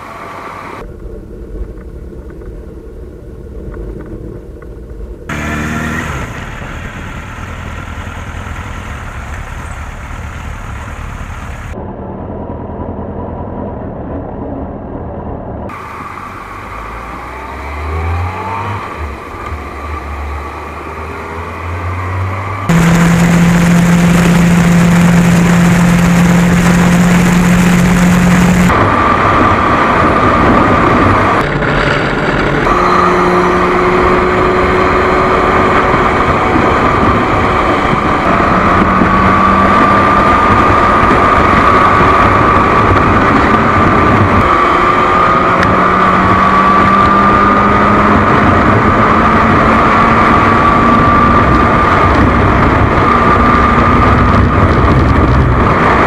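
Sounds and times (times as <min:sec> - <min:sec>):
motorcycle engine cruising: 0:00.0 - 0:14.0, 0:15.7 - 0:56.0
wind rush: 0:11.5 - 0:56.0.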